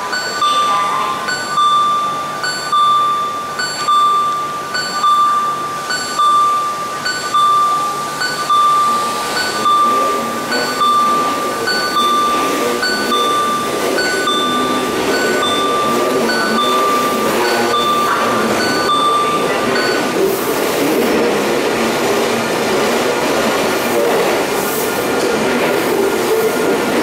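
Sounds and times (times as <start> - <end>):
train rolling with low rumble: 0.0 - 27.0
electronic beeps: 0.1 - 20.3.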